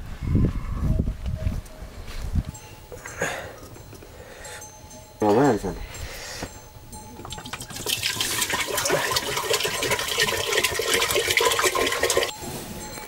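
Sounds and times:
water pouring into metal plate: 7.2s - 12.3s.

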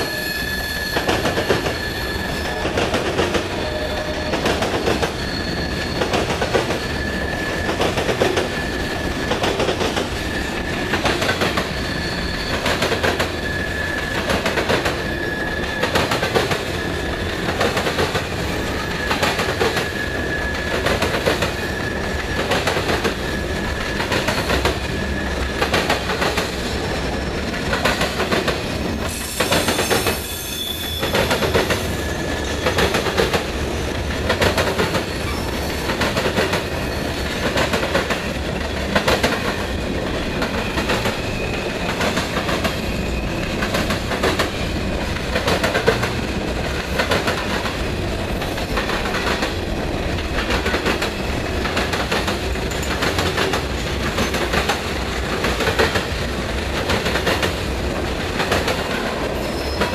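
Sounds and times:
thin wheel squeal: 0.0s - 2.6s, 5.1s - 7.8s, 11.7s - 14.2s, 29.1s - 33.0s
freight train rumbling past: 0.0s - 59.9s
train wheels clattering over rails: 0.8s - 59.9s.

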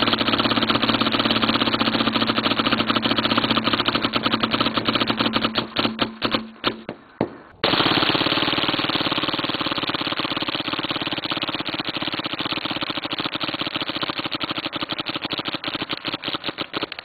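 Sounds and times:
paintball marker firing rapidly: 0.0s - 17.0s.

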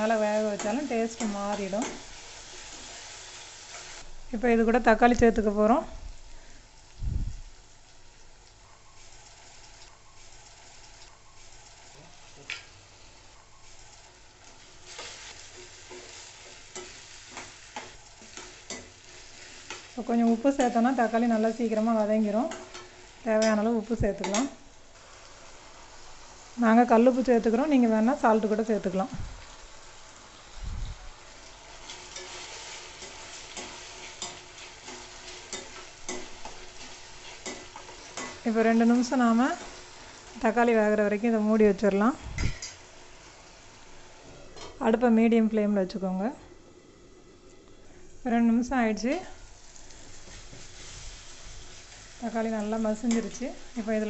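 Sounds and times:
vegetables sizzling in oil: 0.0s - 54.0s
spatula scraping a pan: 14.5s - 20.0s, 49.9s - 52.1s.

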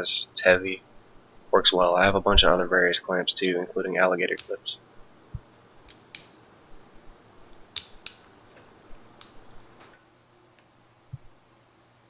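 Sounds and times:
locking pliers clicking: 5.8s - 6.4s, 7.5s - 9.9s.

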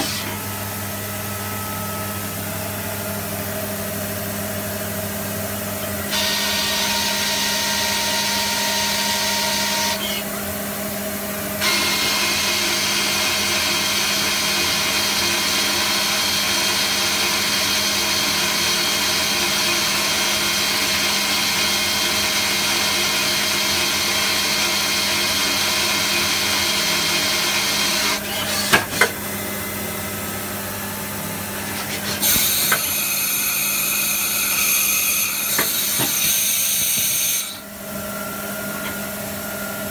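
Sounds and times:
lathe hissing and whining: 31.6s - 39.3s.

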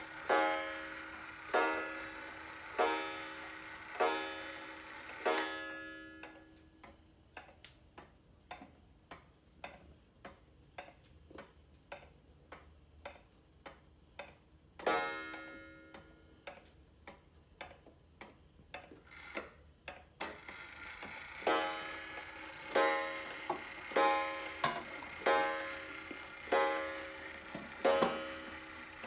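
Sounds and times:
clock gong ringing: 0.0s - 6.5s, 20.4s - 29.0s
wall clock ticking: 0.0s - 29.0s.

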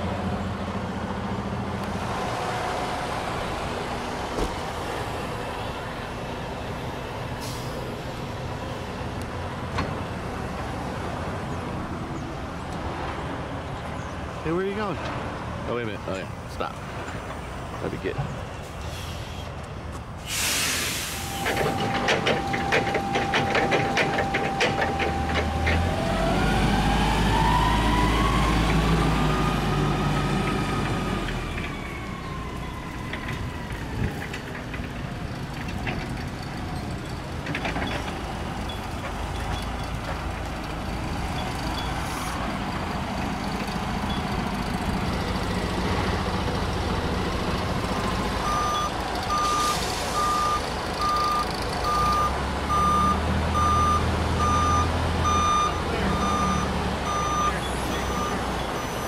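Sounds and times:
vehicle engine rumbling: 0.0s - 59.0s
forklift engine running: 21.3s - 59.0s
steel trailer rattling and clanking: 21.4s - 26.0s, 33.0s - 42.0s.

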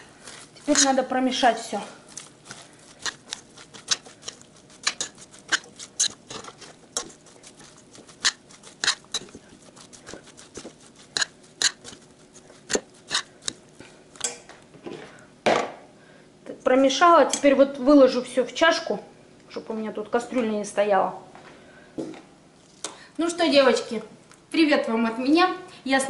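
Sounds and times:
wet vegetables rustling: 0.0s - 14.8s.

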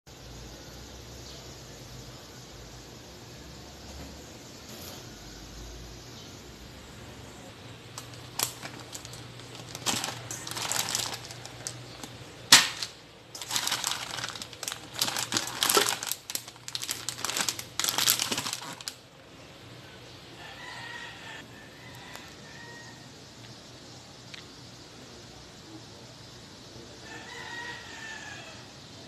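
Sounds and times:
plastic packaging crinkling: 8.0s - 19.0s.

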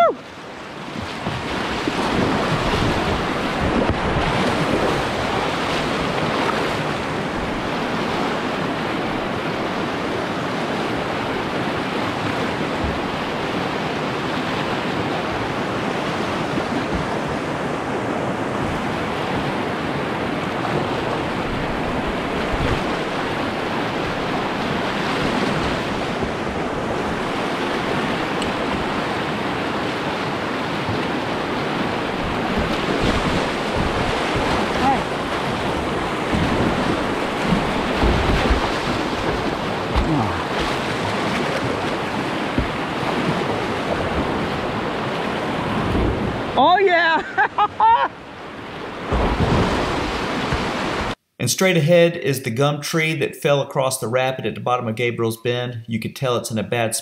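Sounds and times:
river rapid rushing: 0.0s - 51.2s
wind noise on microphone: 1.0s - 7.9s.

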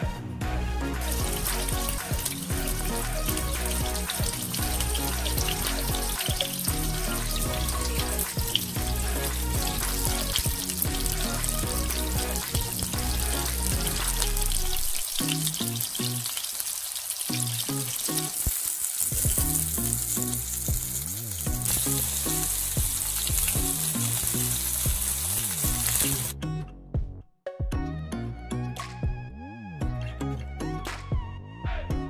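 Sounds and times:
background music: 0.0s - 32.0s
meat sizzling in oil: 1.0s - 26.4s.

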